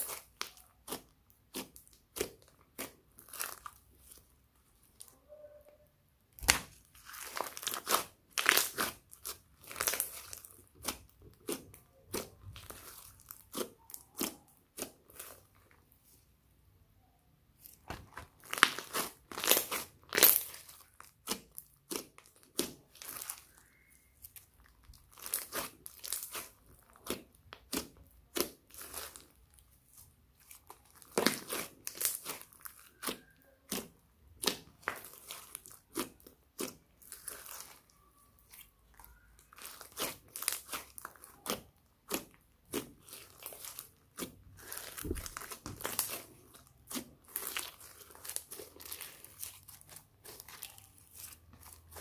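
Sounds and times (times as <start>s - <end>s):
slime clicking and popping: 6.4s - 15.4s, 30.6s - 49.5s.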